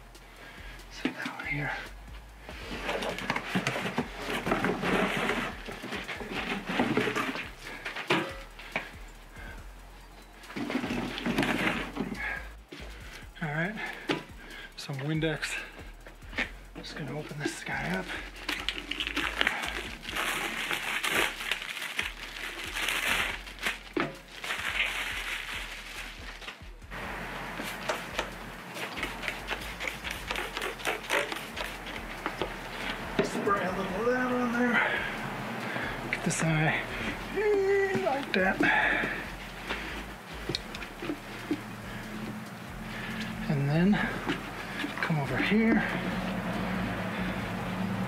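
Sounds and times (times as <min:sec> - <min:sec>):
rubber tire rustling and scuffing: 0:00.9 - 0:09.5, 0:10.4 - 0:47.3
plastic wrapper crinkling and tearing: 0:17.9 - 0:26.7, 0:27.7 - 0:33.0.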